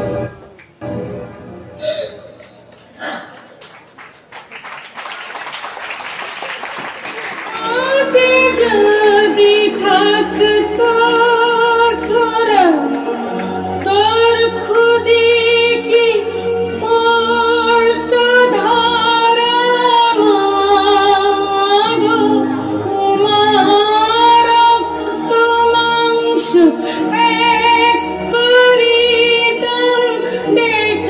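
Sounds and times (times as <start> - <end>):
woman singing long notes: 7.5 - 13.0.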